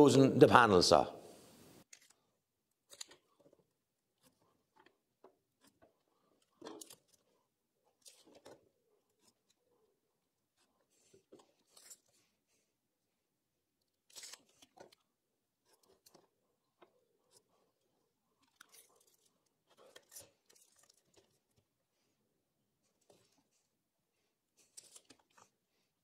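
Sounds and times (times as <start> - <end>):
pencil drawing on wood: 8.0 - 12.5.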